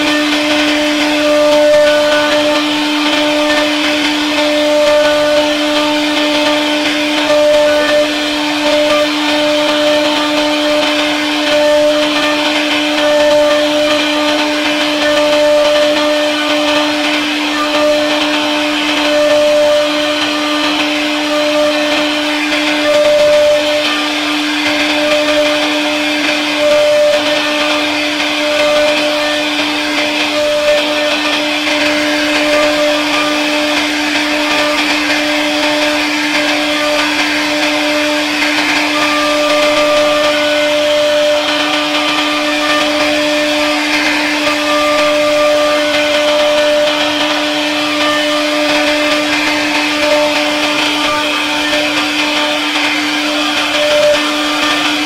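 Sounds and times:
higher cutter tone: 0.0s - 55.0s
hiss of cutting wood: 0.0s - 55.0s
router spindle whine: 0.0s - 55.0s.

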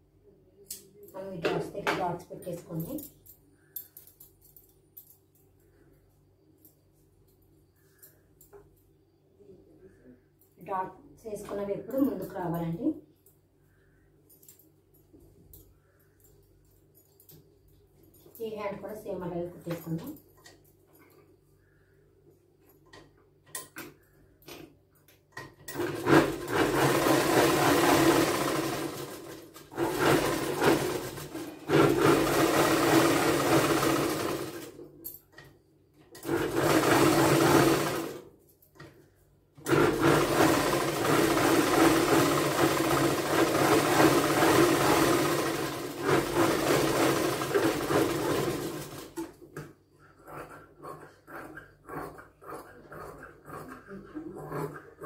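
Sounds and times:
sewing machine stitching: 25.6s - 34.8s, 36.2s - 38.3s, 39.6s - 49.4s.

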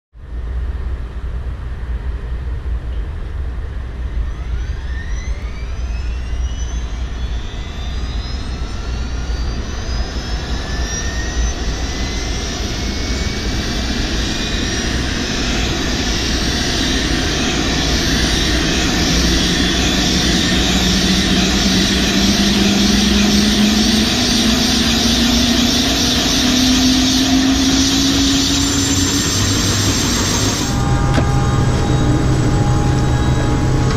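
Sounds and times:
helicopter engine whine: 3.7s - 33.9s
low rumble: 14.5s - 33.9s.

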